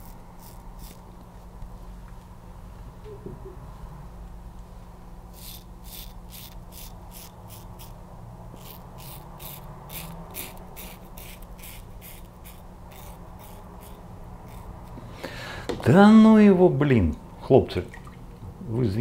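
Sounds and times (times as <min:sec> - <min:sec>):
razor scraping stubble: 0:00.0 - 0:01.1, 0:05.3 - 0:15.0.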